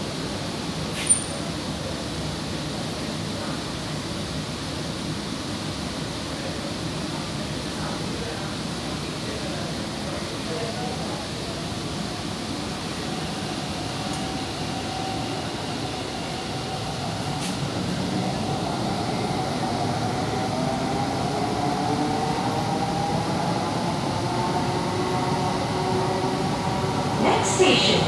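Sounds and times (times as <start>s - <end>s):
train rumble: 9.6s - 28.0s.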